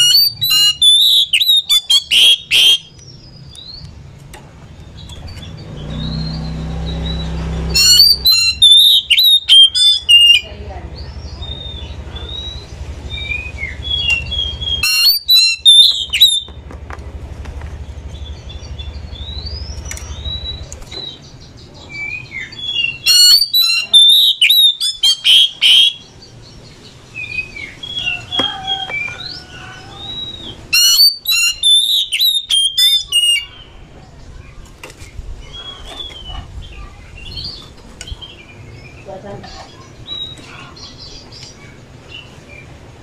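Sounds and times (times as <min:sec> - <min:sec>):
harsh scratchy bird notes: 0:00.0 - 0:03.0
bird whistling song: 0:00.0 - 0:03.9, 0:05.0 - 0:10.5, 0:11.2 - 0:16.6, 0:18.2 - 0:26.2, 0:27.1 - 0:33.8, 0:35.5 - 0:36.4.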